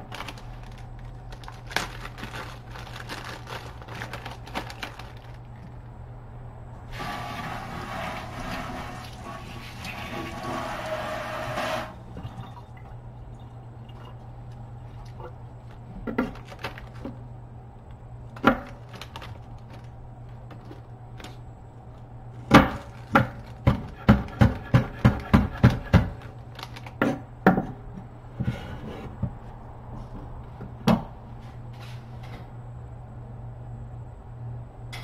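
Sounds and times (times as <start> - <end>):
water running from a tap: 7.0 - 11.9.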